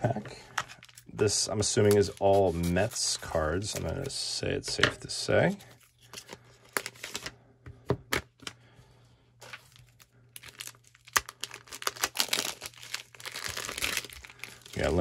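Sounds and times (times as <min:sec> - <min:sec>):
plastic pack crinkling: 0:09.4 - 0:15.0.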